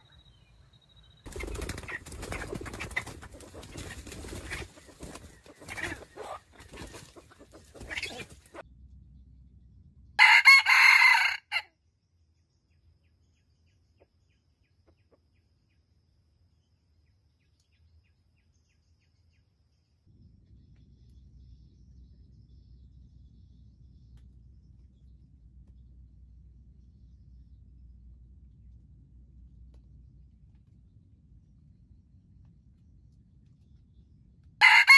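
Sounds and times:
soft bird calls: 0.0s - 8.6s
rooster crowing: 10.2s - 11.7s, 34.6s - 34.9s.

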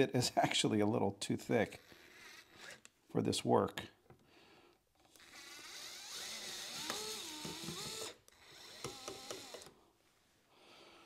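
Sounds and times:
cordless screwdriver motor whine: 5.1s - 9.7s.

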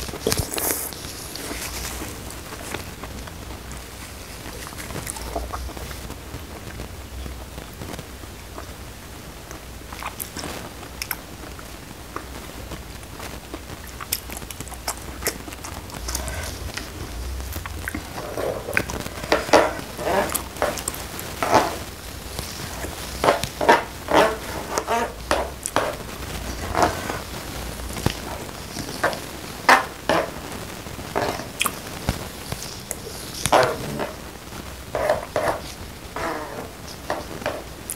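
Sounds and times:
chewing: 0.0s - 2.8s, 9.5s - 12.3s, 13.5s - 29.8s, 31.2s - 34.2s.

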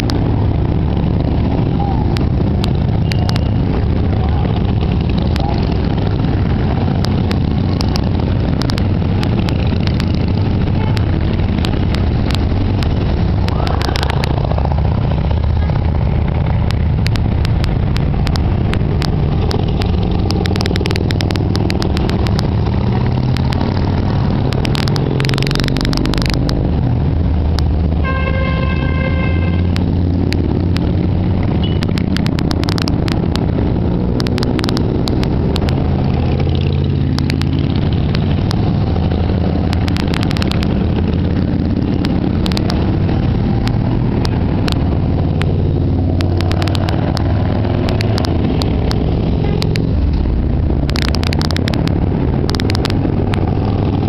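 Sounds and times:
motorcycles passing by: 0.0s - 54.0s
vehicle horn: 28.0s - 29.8s.

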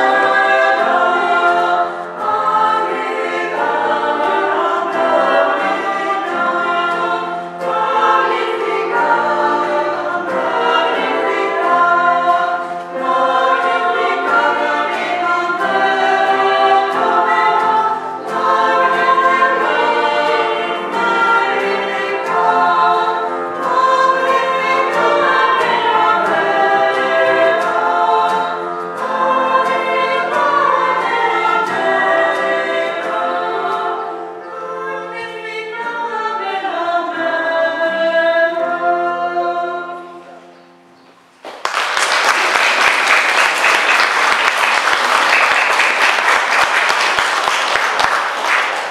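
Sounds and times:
choir singing a cappella: 0.0s - 40.9s, 42.3s - 48.9s
audience applause: 41.4s - 48.9s.

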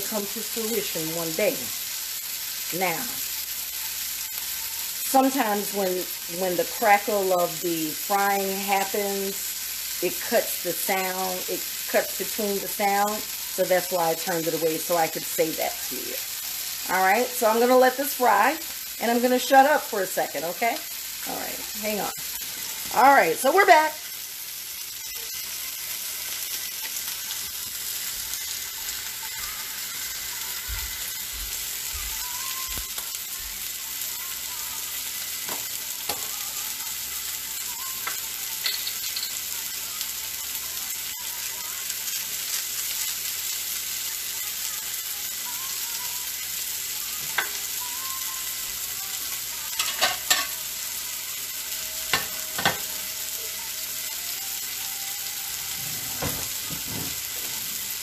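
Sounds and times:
food sizzling on a griddle: 0.0s - 58.0s.

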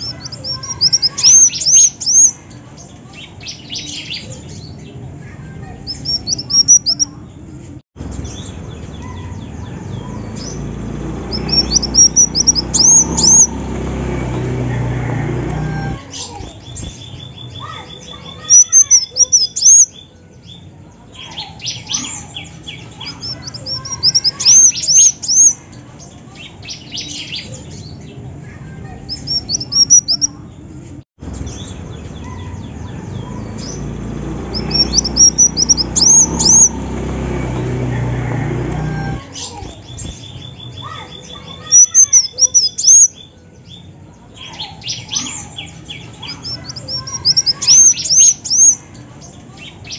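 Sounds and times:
sunbird chirping: 0.0s - 4.9s, 5.9s - 7.3s, 8.1s - 14.6s, 15.8s - 25.9s, 29.1s - 30.4s, 31.3s - 37.3s, 39.5s - 49.1s
fast run of bird ticks: 10.4s - 15.9s, 33.6s - 38.9s.

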